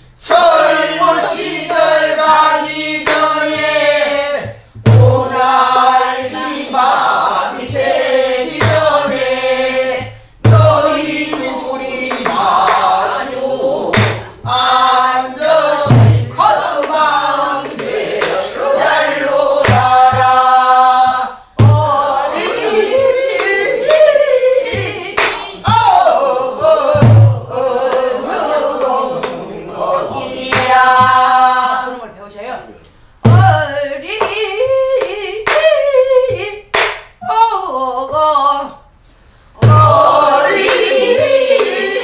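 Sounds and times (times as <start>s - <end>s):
group singing folk song: 0.0s - 32.1s, 33.2s - 37.0s, 39.4s - 42.0s
barrel drum thumps: 4.4s - 5.4s, 8.6s - 9.2s, 10.0s - 11.4s, 13.9s - 14.7s, 15.8s - 16.9s, 19.6s - 22.0s, 25.6s - 27.5s, 30.5s - 31.4s, 33.2s - 33.7s, 39.6s - 40.1s.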